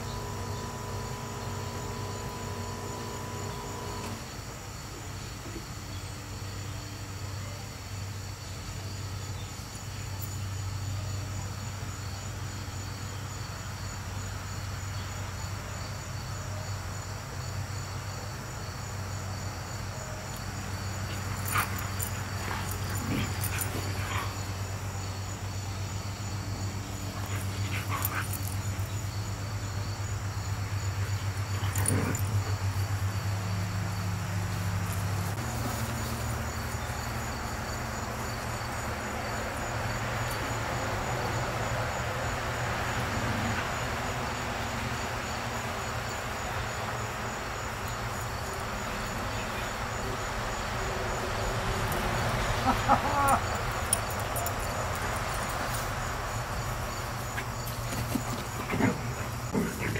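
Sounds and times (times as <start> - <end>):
pulsing insect chirping: 0.0 - 7.2, 8.0 - 59.9.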